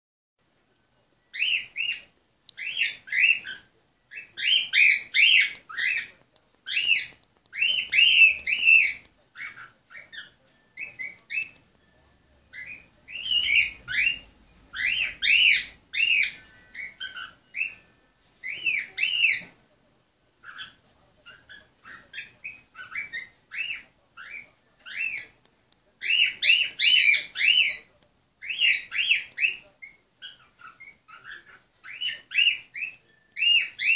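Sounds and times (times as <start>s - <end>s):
cockatiel whistling: 1.3s - 6.1s, 6.7s - 11.7s, 12.5s - 19.5s, 26.0s - 33.9s.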